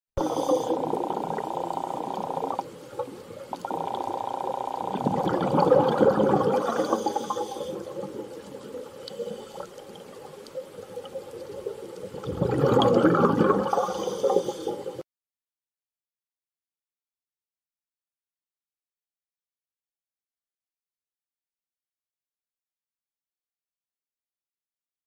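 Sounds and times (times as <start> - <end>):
faint steady hum: 0.2 - 15.0
rushing underwater water: 0.2 - 15.0.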